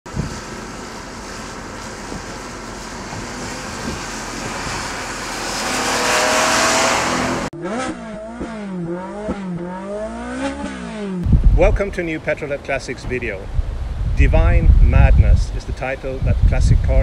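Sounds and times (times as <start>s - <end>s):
car engine at speed: 0.1s - 11.7s
road noise: 0.1s - 17.0s
engine revving in quick blips: 2.1s - 11.4s.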